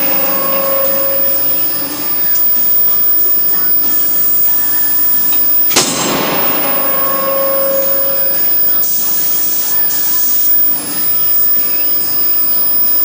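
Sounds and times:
sharp metal clang ringing: 5.7 - 10.2.

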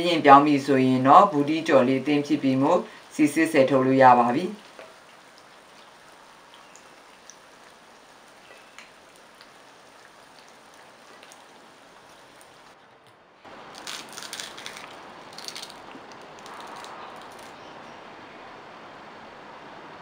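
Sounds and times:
fritters sizzling in oil: 0.5 - 12.8
fried fritter torn apart crackling: 13.6 - 17.6.

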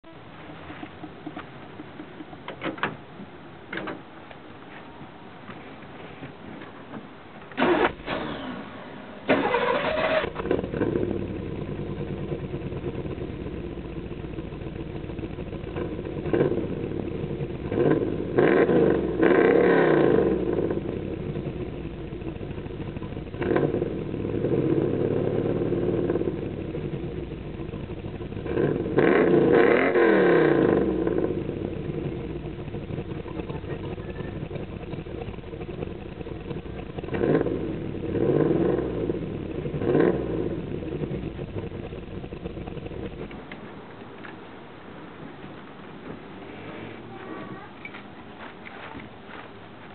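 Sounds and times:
car engine starting and revving: 7.5 - 43.6.

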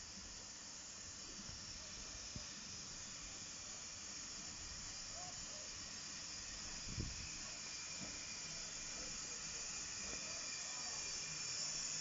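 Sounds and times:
steam locomotive hissing: 0.0 - 12.0.

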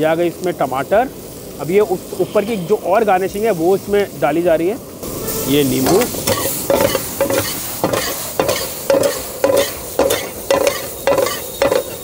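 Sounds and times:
onions frying hiss: 0.0 - 12.0
metal spatula scraping frying pan: 5.8 - 12.0.

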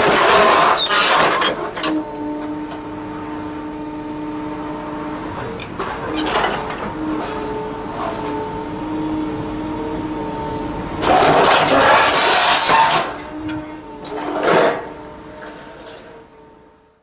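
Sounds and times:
shear cutting steel guardrail: 0.0 - 2.8, 11.0 - 16.2
excavator engine and hydraulics: 0.0 - 17.0.

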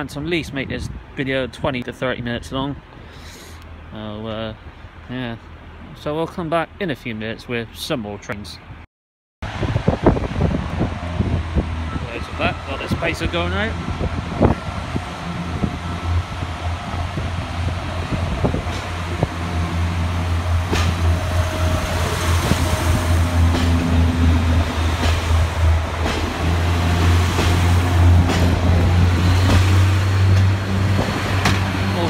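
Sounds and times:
diesel engine drone: 9.5 - 32.0.

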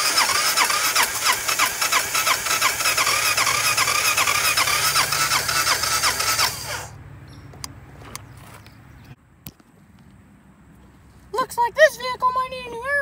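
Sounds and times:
electric starter cranking engine: 0.0 - 7.0.

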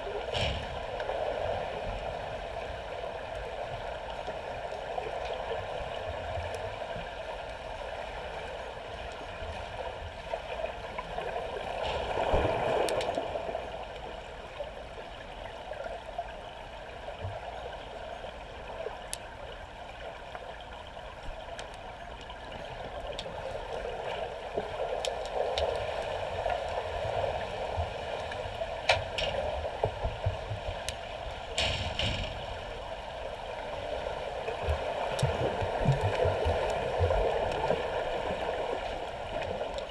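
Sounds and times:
muffled underwater water rush: 0.0 - 39.9.

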